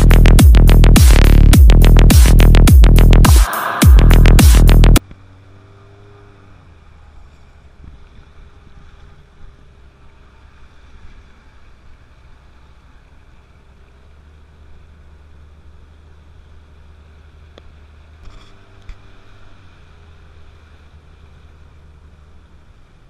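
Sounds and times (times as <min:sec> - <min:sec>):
outboard motor drone: 0:00.0 - 0:23.0
rushing water and wind: 0:07.3 - 0:23.0.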